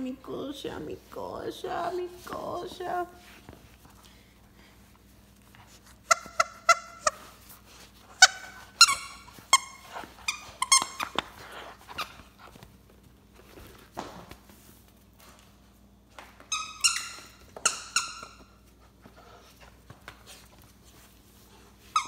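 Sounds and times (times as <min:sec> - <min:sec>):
squeaky dog toy squeaking: 0:06.0 - 0:07.4, 0:08.1 - 0:11.2, 0:16.5 - 0:18.6.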